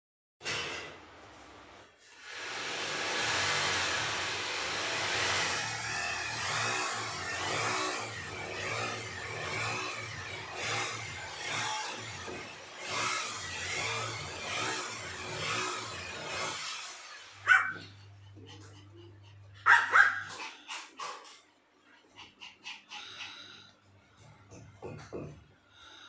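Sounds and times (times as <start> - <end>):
electric drill whining: 2.2 - 17.4.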